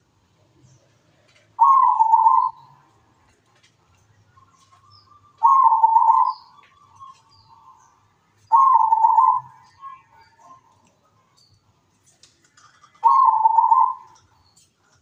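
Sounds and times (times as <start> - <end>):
dove cooing: 1.3 - 2.9, 4.5 - 7.8, 8.4 - 10.8, 12.6 - 14.2.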